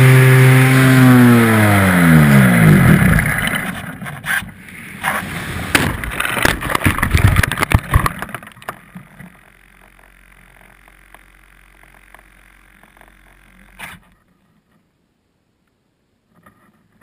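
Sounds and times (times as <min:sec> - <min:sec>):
knocks and scraping: 0:03.1 - 0:10.0
model plane crashing into branches: 0:04.9 - 0:08.8.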